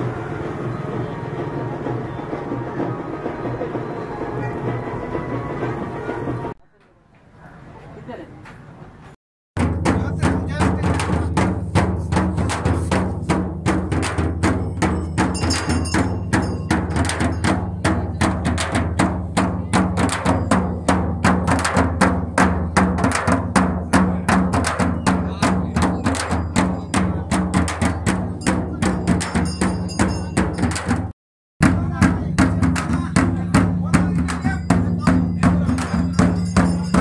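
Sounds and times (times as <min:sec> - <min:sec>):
frame drums beaten with sticks: 0:09.6 - 0:37.0.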